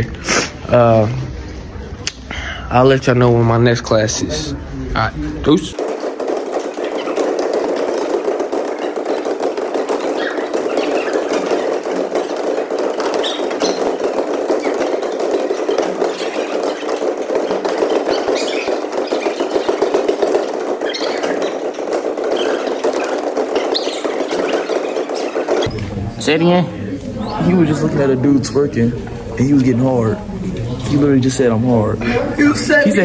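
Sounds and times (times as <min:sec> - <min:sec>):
echoing gymnasium din: 0:05.2 - 0:33.0
sneakers squeaking on hardwood: 0:05.5 - 0:26.0.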